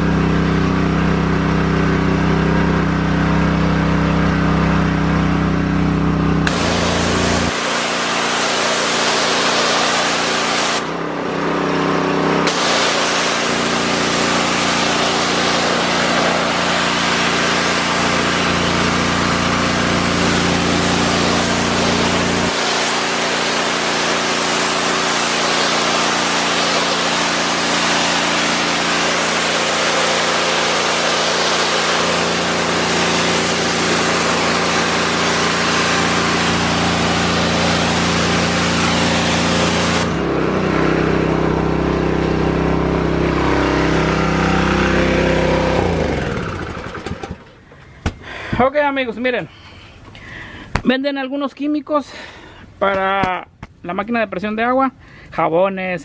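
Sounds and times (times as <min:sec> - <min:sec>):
pressure washer engine running: 0:00.0 - 0:49.0
high-pressure spray hissing on concrete: 0:06.5 - 0:10.9, 0:12.4 - 0:40.2.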